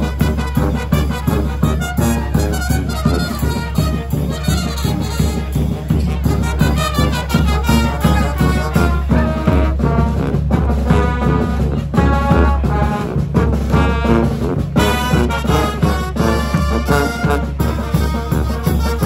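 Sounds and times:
bass drum beat: 0.0s - 19.0s
brass band playing: 0.0s - 19.0s.

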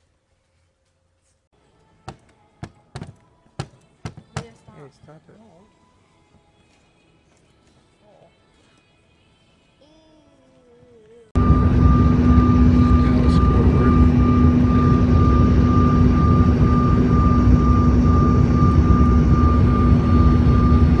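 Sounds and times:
aircraft engines in cabin: 11.4s - 21.0s.

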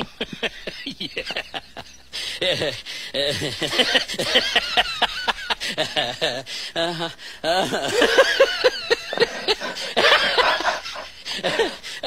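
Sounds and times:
people laughing: 0.0s - 12.0s
voices: 1.9s - 5.0s.

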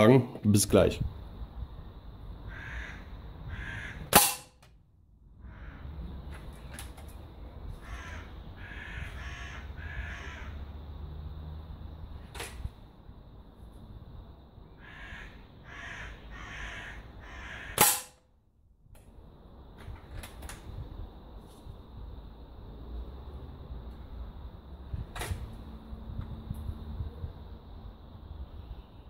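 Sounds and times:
bird calls: 2.4s - 4.1s, 5.4s - 10.6s, 14.7s - 17.8s
air rifle shot: 4.1s - 4.6s, 17.8s - 18.2s
pellet striking target: 4.1s - 4.6s, 17.8s - 18.2s.

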